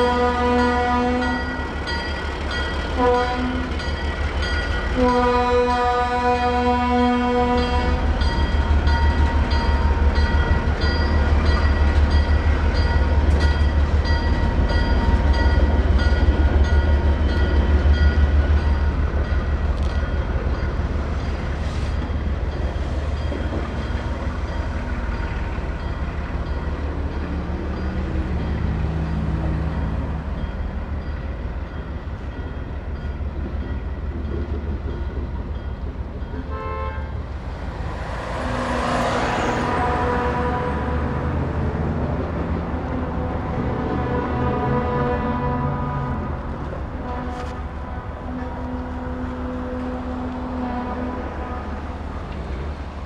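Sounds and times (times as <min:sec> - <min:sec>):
locomotive bell ringing: 0:00.0 - 0:37.0
diesel locomotive engine rumbling: 0:00.0 - 0:53.0.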